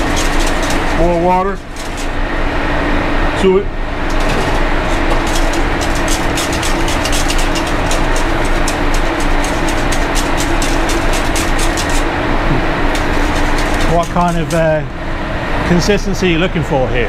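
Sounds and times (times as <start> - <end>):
kitchen exhaust hood humming: 0.0 - 17.0
whisk clicking against a pan: 5.0 - 12.1, 12.8 - 14.6.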